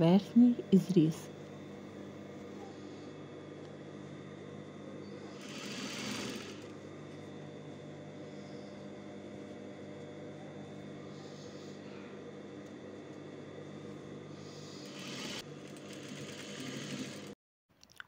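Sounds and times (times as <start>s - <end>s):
sewing machine motor humming: 5.0s - 7.3s, 14.4s - 17.4s.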